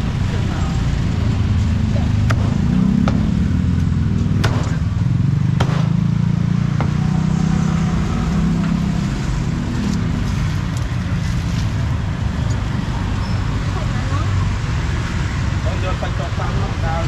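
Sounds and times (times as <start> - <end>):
low rumble of motor traffic: 0.0 - 17.0
sharp knocks: 2.2 - 3.4, 4.2 - 4.9, 5.6 - 6.0.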